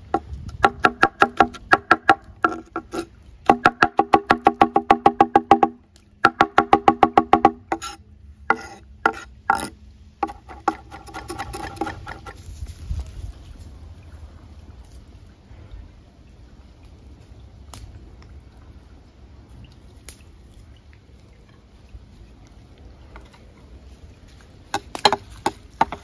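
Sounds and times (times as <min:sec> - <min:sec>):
knife chopping on wooden board: 0:00.6 - 0:12.3.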